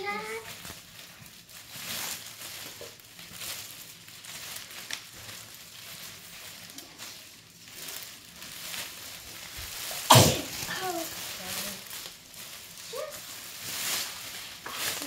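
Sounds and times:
plastic packaging rustling: 0.0s - 15.0s.

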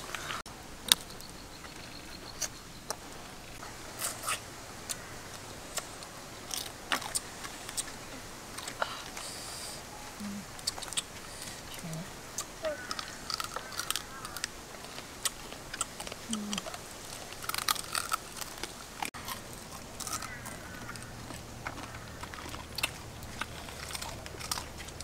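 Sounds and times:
crab shells cracking when chewed: 10.6s - 11.5s, 12.4s - 25.0s.

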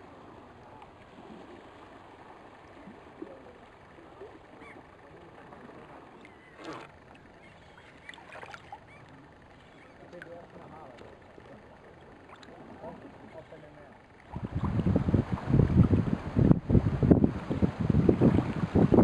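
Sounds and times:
faint water lapping: 0.0s - 19.0s
kayak paddle splashing in water: 0.9s - 13.4s.

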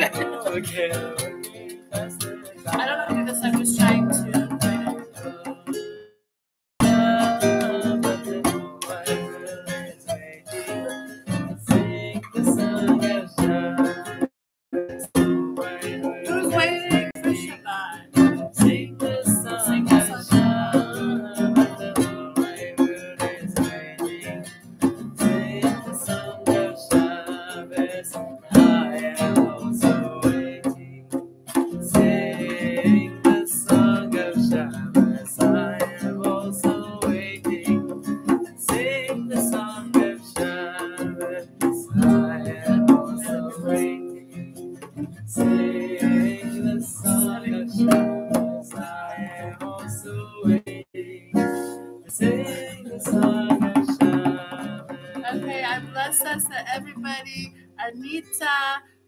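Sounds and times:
people singing: 0.0s - 5.6s, 6.8s - 11.0s, 11.6s - 14.3s, 15.5s - 30.9s, 31.8s - 37.9s, 38.6s - 44.2s, 45.3s - 56.4s
acoustic guitar strumming: 0.0s - 6.2s, 6.8s - 59.0s
djembe struck by hand: 53.1s - 55.3s.

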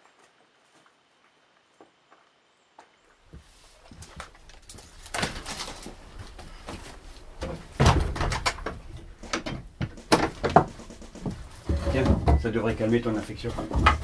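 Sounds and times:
rustling: 3.3s - 14.0s
wooden door: 7.4s - 14.0s.

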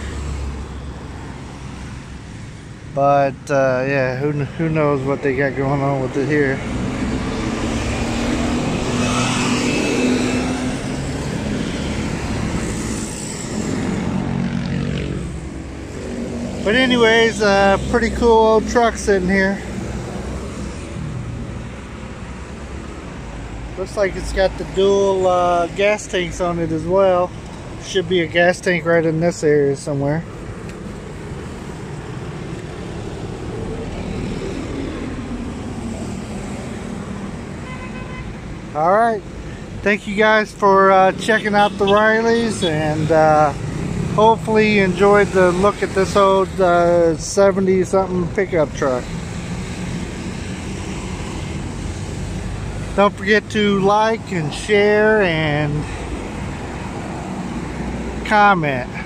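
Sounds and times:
road traffic passing: 0.0s - 59.0s
vehicle passing: 4.0s - 25.8s.

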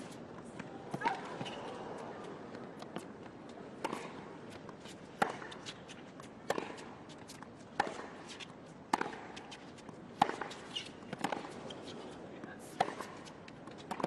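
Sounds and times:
racket hitting tennis ball: 0.0s - 14.0s.

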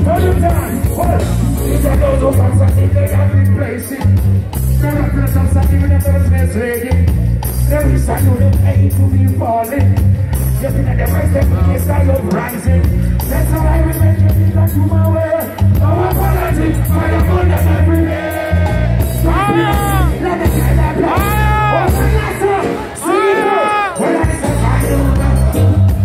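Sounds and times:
live reggae band music: 0.0s - 26.0s
man singing through pa: 10.6s - 26.0s.

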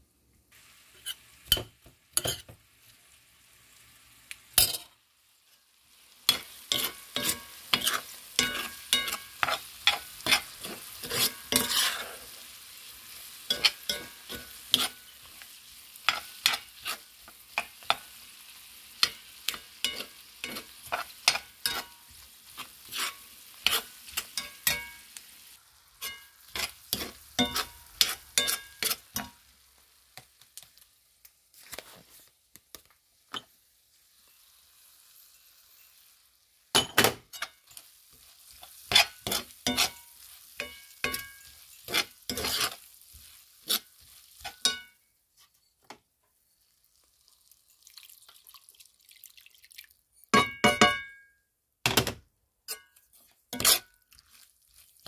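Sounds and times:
corn sizzling in a pan: 0.0s - 49.6s, 52.8s - 55.0s
spatula scraping a pan: 0.9s - 2.6s, 5.5s - 25.2s, 26.0s - 29.4s, 35.2s - 36.2s, 37.2s - 45.8s, 52.7s - 55.0s.

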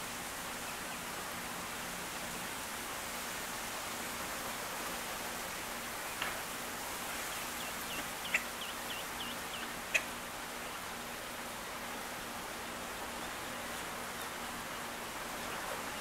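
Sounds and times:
outdoor hiss: 0.0s - 16.0s
ducklings peeping: 7.4s - 10.2s.

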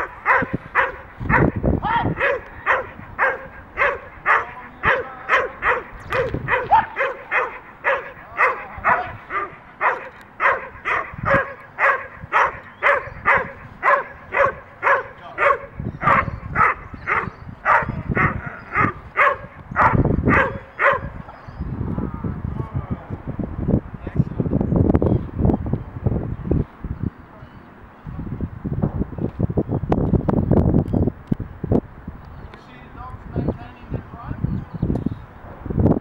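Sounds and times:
dog barking rapidly: 0.0s - 21.2s.

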